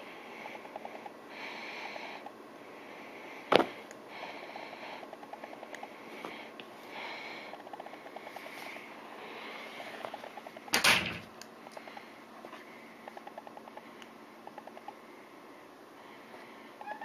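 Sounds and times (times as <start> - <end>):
soft sniffing breaths: 0.0 - 10.6, 11.6 - 16.8.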